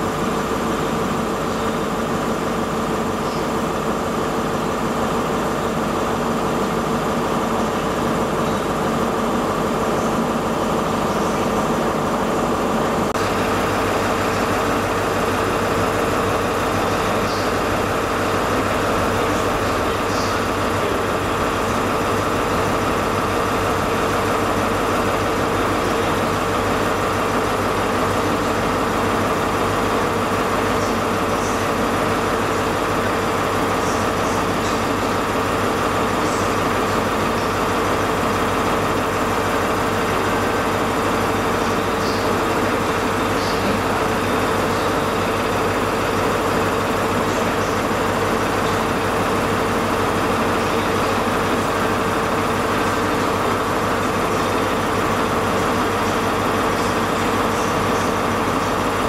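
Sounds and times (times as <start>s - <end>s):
diesel train engines droning: 0.0s - 59.0s.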